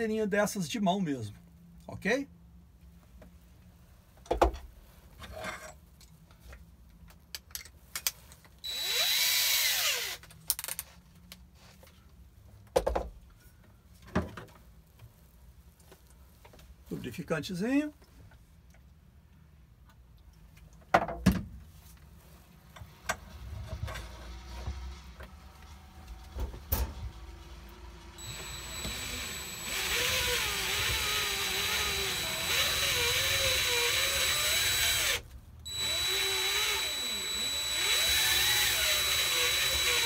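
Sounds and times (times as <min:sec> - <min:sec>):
cordless drill whining: 0:08.7 - 0:10.2, 0:28.2 - 0:40.0.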